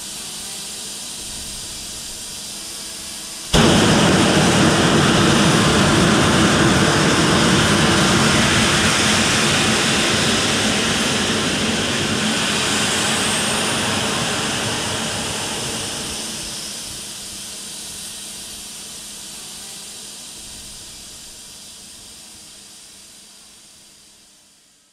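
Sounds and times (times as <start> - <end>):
rocket engine propellant hissing: 0.0 - 19.4.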